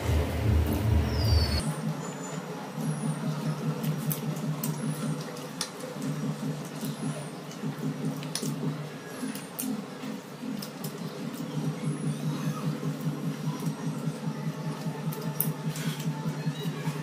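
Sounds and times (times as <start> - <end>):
steady low hum: 0.0 - 17.0
chewing and mouth sounds: 3.7 - 17.0.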